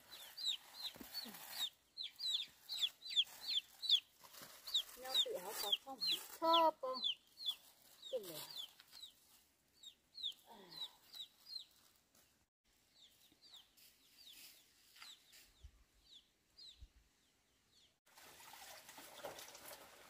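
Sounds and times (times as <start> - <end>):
chickens peeping: 0.0 - 11.9.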